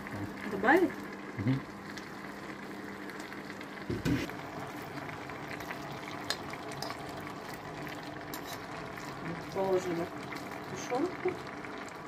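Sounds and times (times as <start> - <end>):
stew simmering and sizzling: 0.0 - 12.0
spoon clicking and scraping: 8.3 - 8.7.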